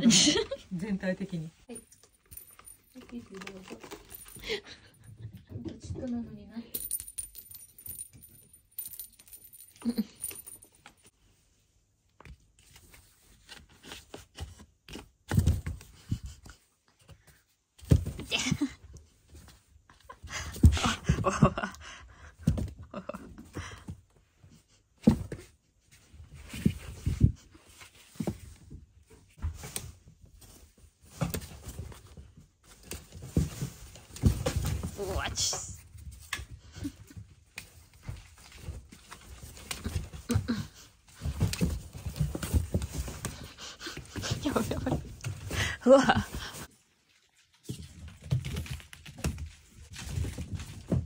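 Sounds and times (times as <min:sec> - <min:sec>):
kittens scuffling: 0:22.2 - 0:51.0.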